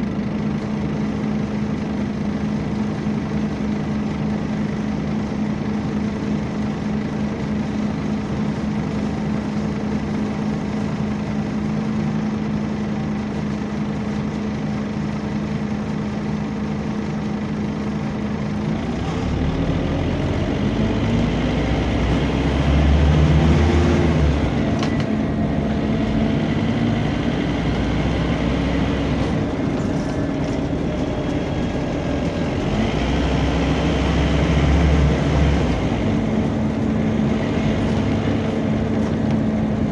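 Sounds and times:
bus engine idling: 0:00.0 - 0:39.9
bus engine revving: 0:18.2 - 0:39.9
cooling fan running: 0:22.0 - 0:39.9.

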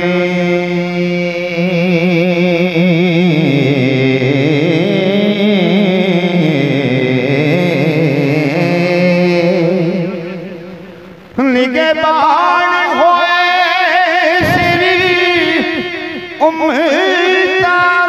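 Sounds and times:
man singing devotional verse: 0:00.0 - 0:18.0
steady low drone: 0:14.3 - 0:17.1.

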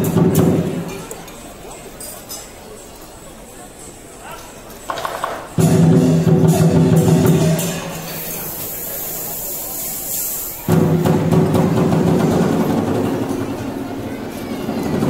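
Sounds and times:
high hiss: 0:07.1 - 0:11.1.

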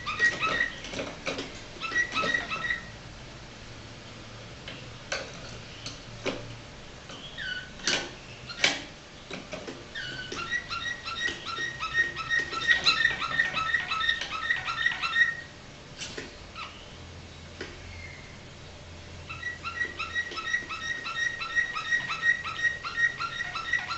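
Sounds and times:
canary singing: 0:00.0 - 0:01.2, 0:01.8 - 0:03.0, 0:07.1 - 0:15.6, 0:16.5 - 0:18.5, 0:19.2 - 0:23.9.

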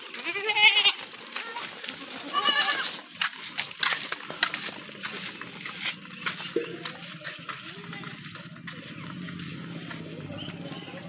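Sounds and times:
goats bleating: 0:00.0 - 0:03.2.

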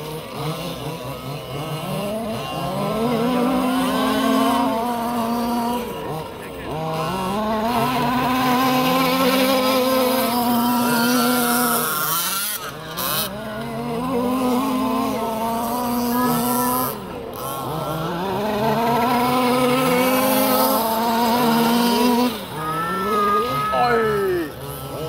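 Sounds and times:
small two-stroke engines revving: 0:00.0 - 0:25.0.

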